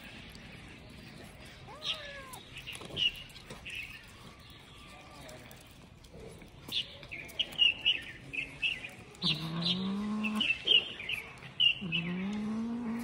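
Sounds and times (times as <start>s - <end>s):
small birds chirping: 0.0s - 13.0s
cat growling: 9.2s - 10.6s, 11.8s - 13.0s.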